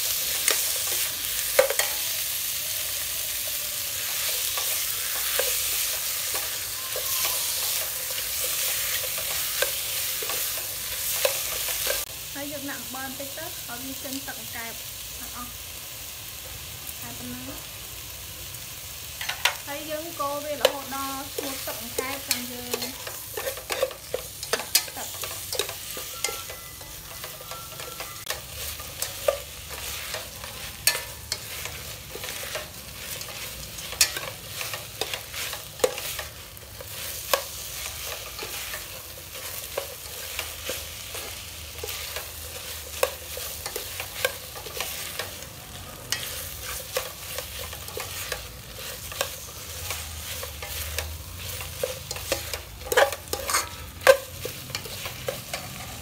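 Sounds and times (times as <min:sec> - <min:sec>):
meat sizzling in a pot: 0:00.0 - 0:56.0
spatula scraping and clinking pot: 0:04.0 - 0:12.1, 0:20.6 - 0:56.0.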